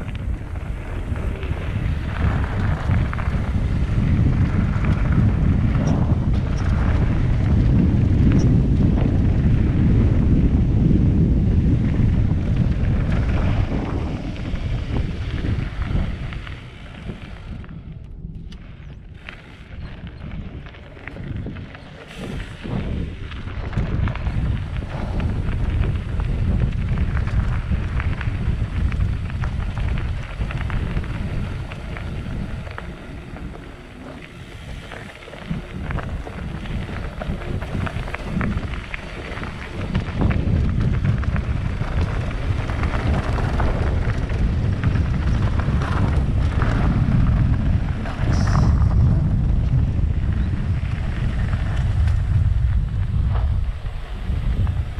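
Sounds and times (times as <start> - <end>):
wind buffeting microphone: 0.0 - 54.9
light crackles: 11.7 - 54.9.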